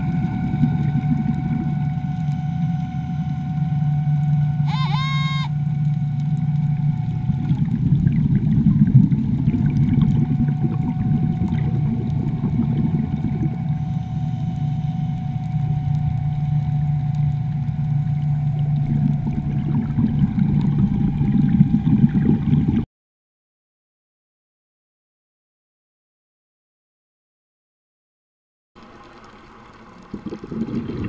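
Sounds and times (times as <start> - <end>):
rushing bubbling water: 0.0 - 2.3, 5.7 - 14.1, 15.2 - 22.8, 28.8 - 31.0
boat engine drone underwater: 0.0 - 22.9, 28.8 - 31.0.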